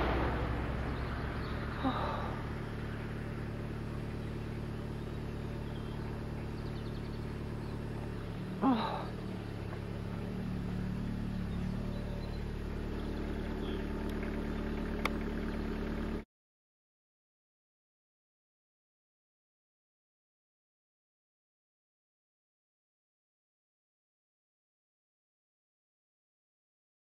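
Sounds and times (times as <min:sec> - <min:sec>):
vehicle engine idling: 0:00.0 - 0:16.2.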